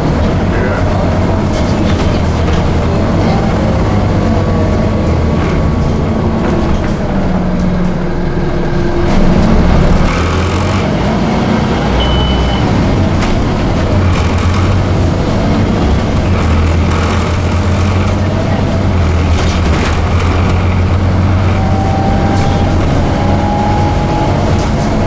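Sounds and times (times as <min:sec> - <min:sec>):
bus engine drone: 0:00.0 - 0:25.0
road noise: 0:00.0 - 0:25.0
high beep: 0:12.0 - 0:12.8.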